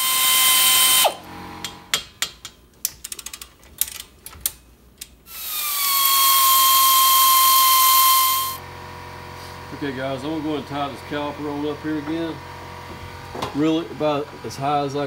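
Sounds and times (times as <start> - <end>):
pneumatic air ratchet whining: 0.0 - 1.8, 5.3 - 8.6
metallic clicks and clinks: 1.6 - 5.2.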